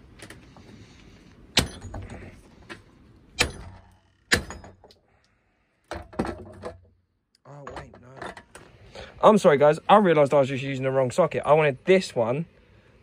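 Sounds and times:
hammer striking steel: 3.4s - 4.8s.

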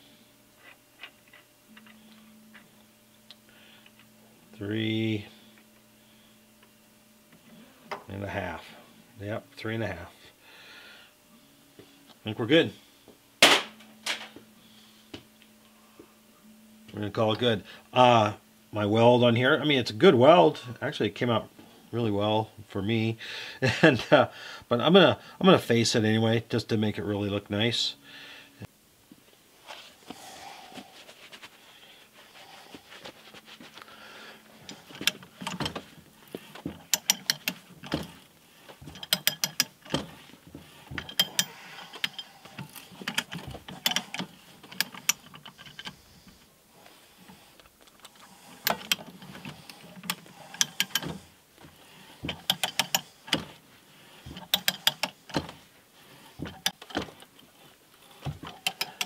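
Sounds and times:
pipe threader ratchet clicks: 36.6s - 38.2s, 38.8s - 40.2s, 41.0s - 46.0s, 48.6s - 51.2s, 52.3s - 53.5s, 54.3s - 55.5s, 58.5s - 59.0s.

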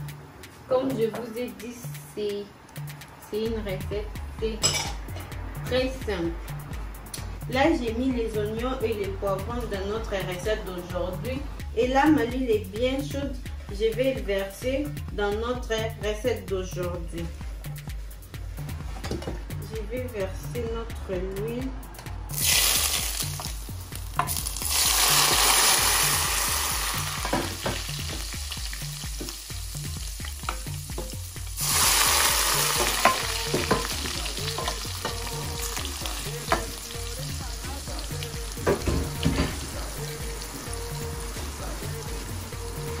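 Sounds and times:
frying crackle with pops: 22.3s - 36.8s
hot oil sizzling: 22.3s - 43.0s.

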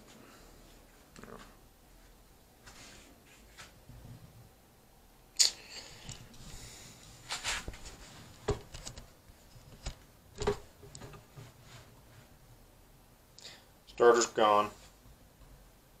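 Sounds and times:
handling knocks and clicks: 8.4s - 11.4s.

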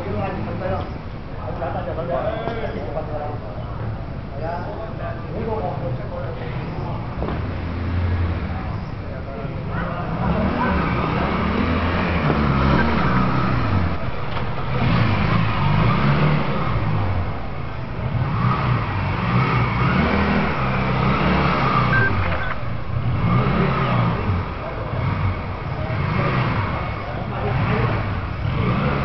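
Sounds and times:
motorcycle engine revving: 9.9s - 29.0s.

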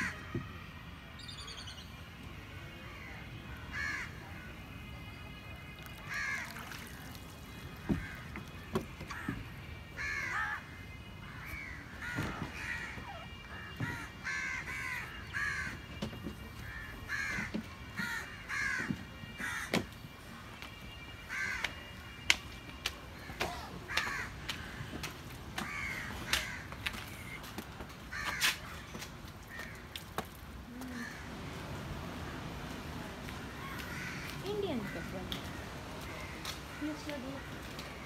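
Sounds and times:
crows cawing: 2.9s - 4.5s, 6.0s - 7.1s, 7.8s - 8.5s, 9.1s - 9.4s, 10.0s - 15.8s, 16.6s - 19.9s, 21.3s - 21.8s, 23.2s - 27.3s, 28.1s - 30.0s, 30.8s - 31.3s, 33.5s - 37.8s.

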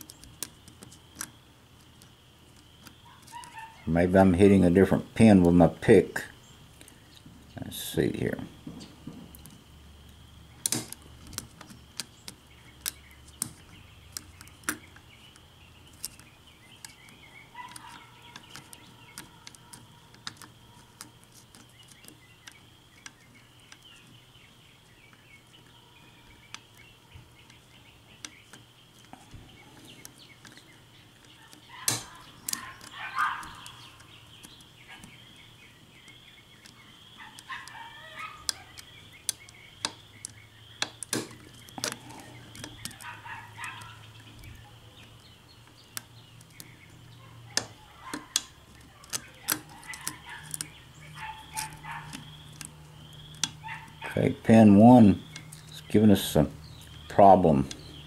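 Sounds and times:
lock pick clicking and scraping: 10.6s - 24.2s, 26.2s - 35.4s, 38.4s - 46.9s, 47.6s - 54.2s, 55.2s - 56.0s.

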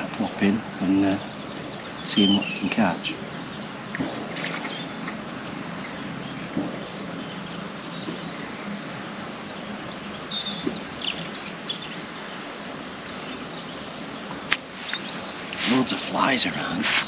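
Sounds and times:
high bird chirps: 0.0s - 17.0s
outdoor background noise: 0.0s - 17.0s.

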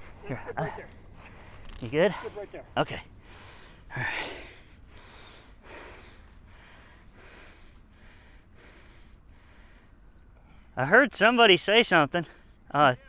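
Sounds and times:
man breathing hard: 3.1s - 10.8s.

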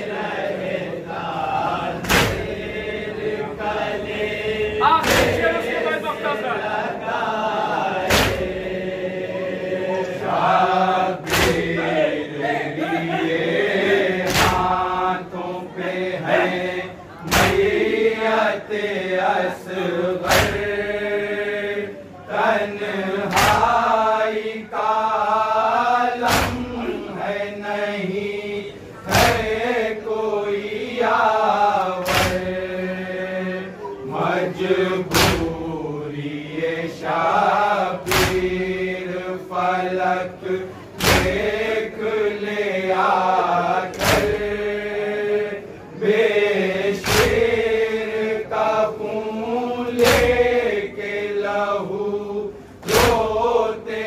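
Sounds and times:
lead reciter: 0.0s - 54.0s
men chanting in unison: 0.0s - 54.0s
collective chest slaps: 2.0s - 2.8s, 5.0s - 5.7s, 8.0s - 8.7s, 11.2s - 11.9s, 14.2s - 15.0s, 17.2s - 17.9s, 20.2s - 20.8s, 23.2s - 23.9s, 26.2s - 27.0s, 29.1s - 29.6s, 32.0s - 32.7s, 35.1s - 35.6s, 38.0s - 38.8s, 41.0s - 41.7s, 43.9s - 44.7s, 46.9s - 47.8s, 49.9s - 50.8s, 52.8s - 53.6s.

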